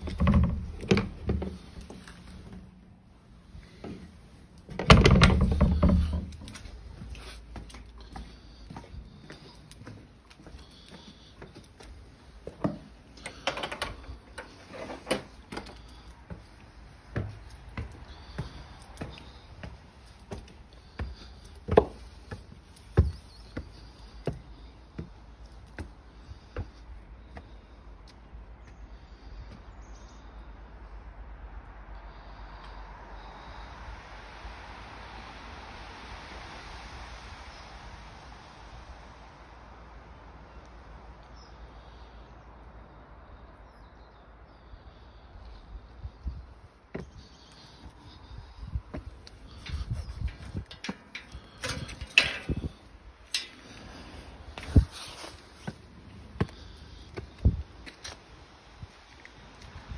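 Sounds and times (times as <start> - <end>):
footsteps on stone steps: 0.0 - 28.4, 46.9 - 58.3
birds chirping: 0.0 - 30.6, 41.2 - 58.1.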